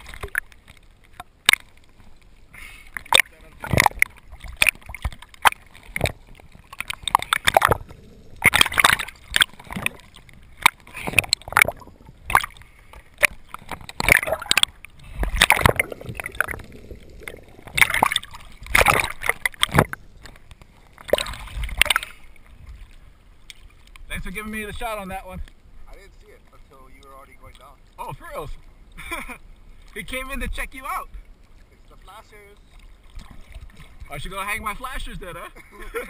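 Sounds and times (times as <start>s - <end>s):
sea water splashing and gurgling: 0.0s - 36.0s.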